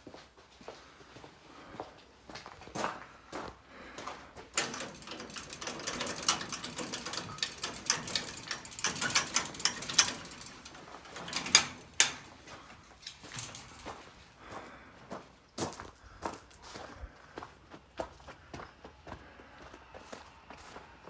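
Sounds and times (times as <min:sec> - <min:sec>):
footsteps crunching on gravel: 0:13.2 - 0:19.3.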